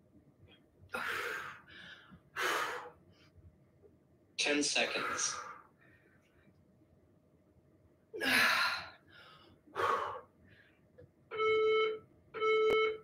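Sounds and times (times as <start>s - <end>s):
electronic timer beeping: 11.3s - 13.0s.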